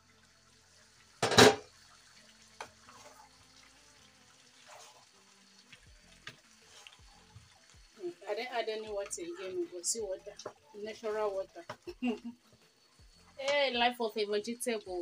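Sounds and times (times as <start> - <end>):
soup bubbling: 0.0 - 13.4
metal pot lid clattering: 1.2 - 1.7
wooden spatula stirring soup: 2.6 - 3.3, 4.5 - 7.7.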